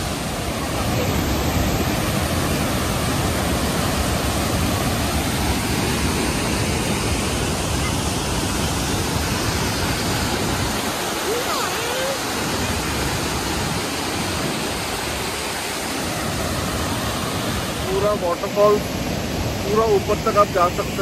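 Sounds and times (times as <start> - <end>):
waterfall rushing over rocks: 0.0 - 21.0.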